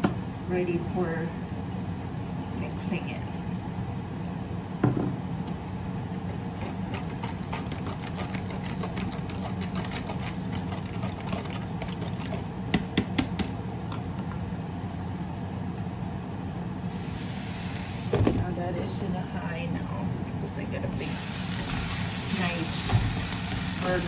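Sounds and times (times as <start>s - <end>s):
gas burner hum: 0.0s - 24.0s
knock: 4.8s - 5.1s
vegetables crackling in a pan: 21.1s - 24.0s.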